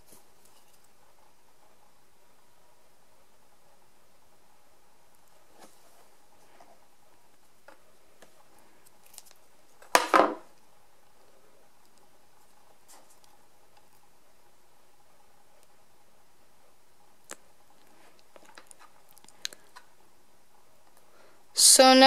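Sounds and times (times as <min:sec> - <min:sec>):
object knocking on tabletop: 0:09.9 - 0:10.4.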